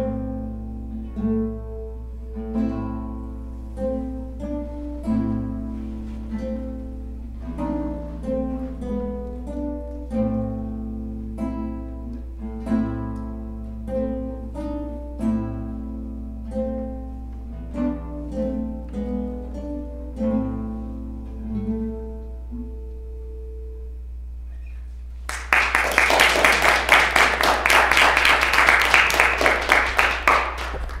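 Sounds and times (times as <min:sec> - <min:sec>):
acoustic guitars playing chords: 0:00.0 - 0:31.0
audience applause: 0:25.3 - 0:31.0.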